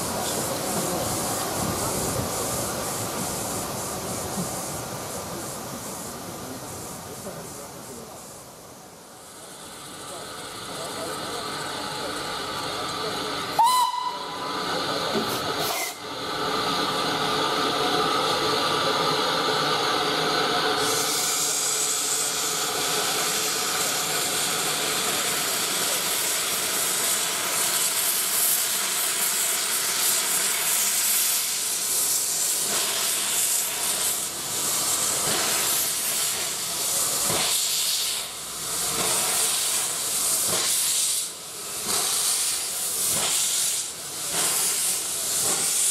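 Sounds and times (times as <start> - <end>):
steam hissing from drain cocks: 9.2 - 45.9
steam locomotive whistle: 13.5 - 14.7.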